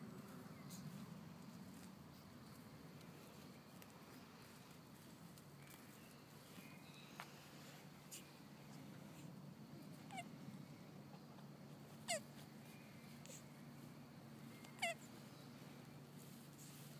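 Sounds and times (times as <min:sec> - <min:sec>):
tortoise squeaking: 0:09.2 - 0:10.4, 0:11.1 - 0:13.5, 0:14.4 - 0:15.6.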